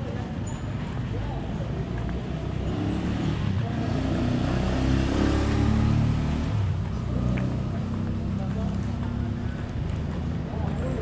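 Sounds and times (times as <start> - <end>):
vehicle engine passing by: 2.2 - 11.0.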